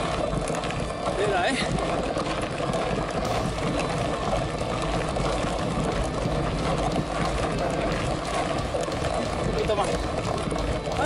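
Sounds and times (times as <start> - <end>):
bike drivetrain under load: 3.2 - 11.0.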